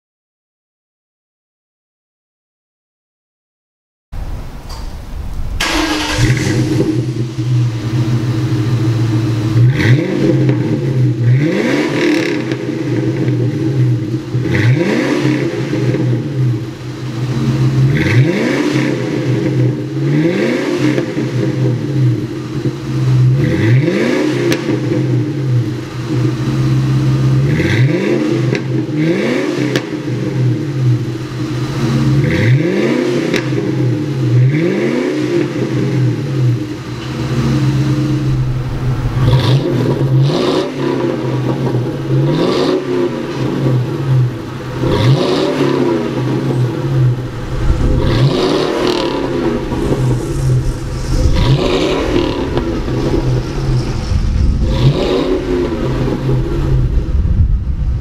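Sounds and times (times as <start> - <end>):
car engine idling and revving: 5.3 - 58.0.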